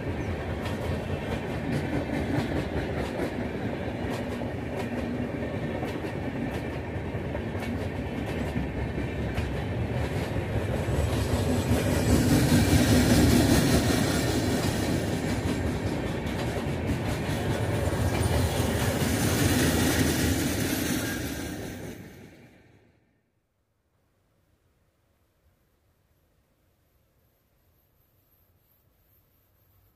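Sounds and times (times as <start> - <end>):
train wheels rumbling on rails: 0.0 - 22.8
wheels clacking over rail joints: 0.2 - 22.1.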